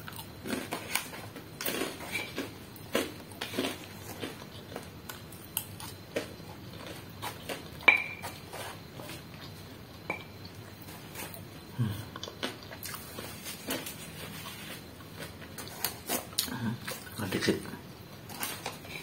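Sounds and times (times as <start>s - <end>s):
chewing and mouth smacks: 12.1s - 13.9s.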